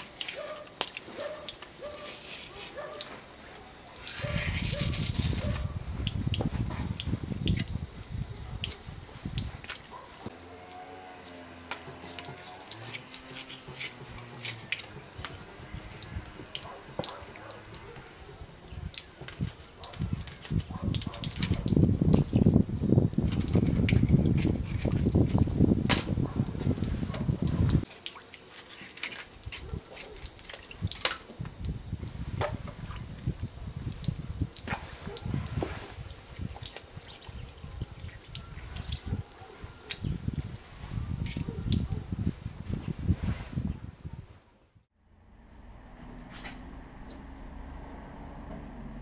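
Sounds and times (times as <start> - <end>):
small splashes and knocks: 5.3 - 40.0
low rumble: 45.0 - 49.0.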